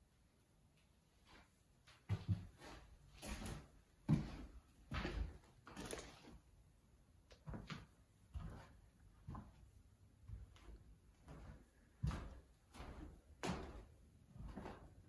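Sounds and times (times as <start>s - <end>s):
footsteps and scuffs: 2.0s - 6.4s, 7.4s - 9.7s, 10.3s - 15.0s.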